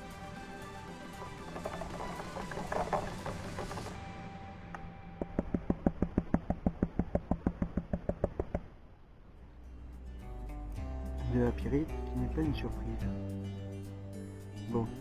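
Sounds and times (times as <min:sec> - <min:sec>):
hand tapping plastic pan: 0:01.5 - 0:03.9, 0:05.2 - 0:08.6.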